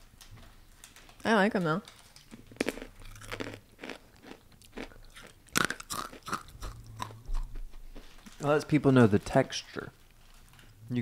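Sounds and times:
crunchy snack chewing: 2.2 - 8.4.

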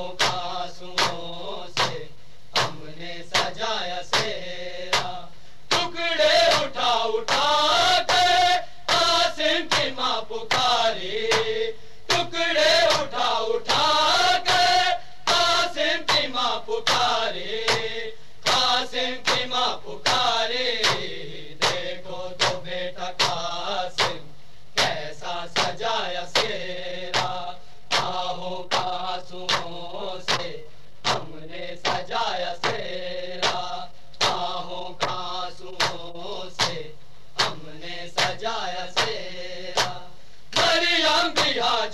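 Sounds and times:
men singing a group chant: 0.0 - 41.9
hands slapping chest: 0.2 - 1.2, 1.8 - 2.0, 2.6 - 5.9, 9.7 - 10.7, 11.3 - 13.9, 17.7 - 17.9, 18.5 - 20.2, 20.8 - 21.8, 22.4 - 22.6, 23.2 - 23.4, 26.4 - 29.7, 30.3 - 32.0, 33.4 - 35.2, 36.6 - 36.8, 37.4 - 37.6, 39.0 - 39.2, 39.8 - 40.0.

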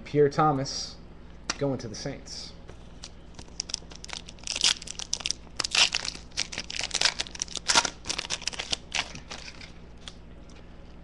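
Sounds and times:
foil wrapper crinkling and tearing: 2.9 - 10.2.

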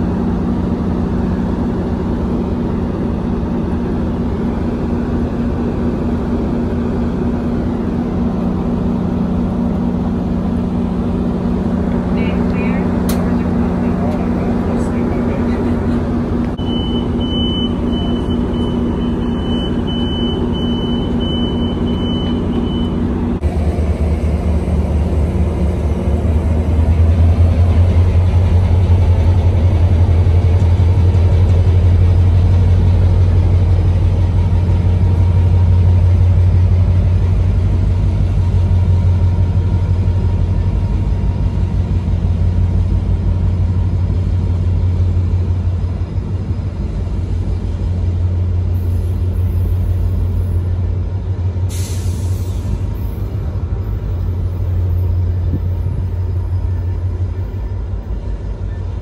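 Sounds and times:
diesel locomotive engine rumbling: 0.0 - 59.0
train door chime beeping: 16.6 - 23.1.

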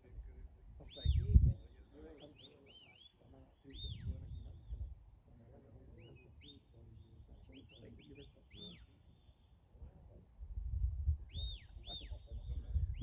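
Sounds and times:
low wind rumble: 0.0 - 1.9, 3.8 - 5.4, 9.7 - 13.0.

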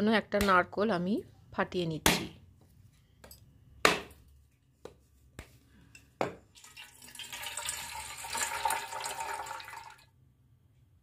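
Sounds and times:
water pouring into metal bowl: 6.6 - 10.1.

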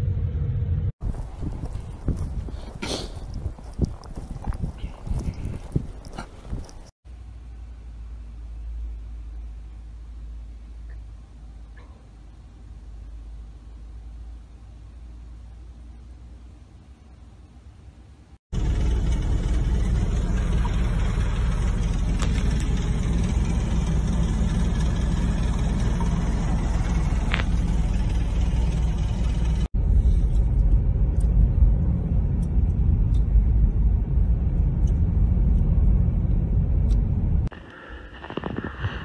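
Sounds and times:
car running noise: 0.0 - 6.9, 18.5 - 39.0
strong wind on microphone: 1.0 - 6.9.

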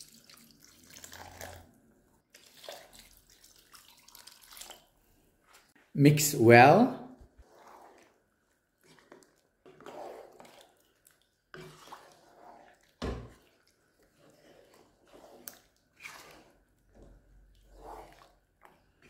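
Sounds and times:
wooden spoon stirring curry: 7.2 - 19.0.

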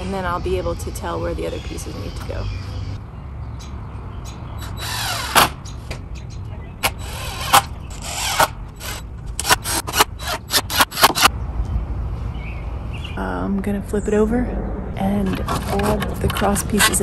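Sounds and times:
cordless driver driving screws: 4.6 - 5.7, 6.8 - 11.3.

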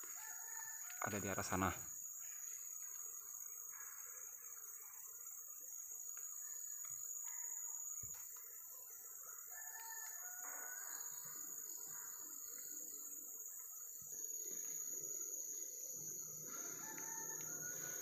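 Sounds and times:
distant rooster crowing: 0.0 - 1.6, 9.2 - 12.5, 15.8 - 18.0
forest insects droning: 0.0 - 18.0.

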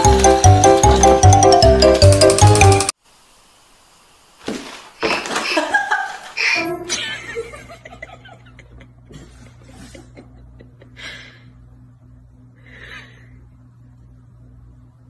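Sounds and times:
person stifling laughs: 5.2 - 11.4
steady low hum: 6.4 - 15.0.

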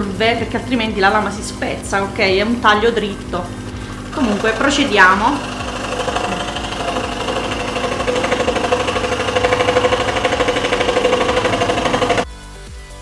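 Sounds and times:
background music: 0.0 - 13.0
scroll saw cutting plywood: 3.5 - 12.2.

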